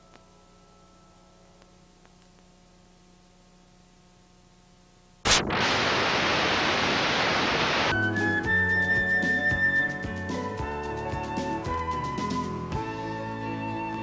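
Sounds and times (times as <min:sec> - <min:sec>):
videotape static hiss: 0:00.0 - 0:14.0
background music: 0:07.9 - 0:14.0.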